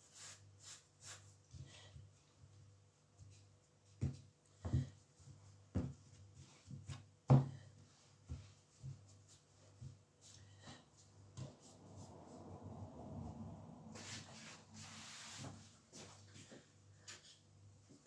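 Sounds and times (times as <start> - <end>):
soft thumps and taps of pastry: 3.2 - 10.1
low steady hum: 7.6 - 18.0.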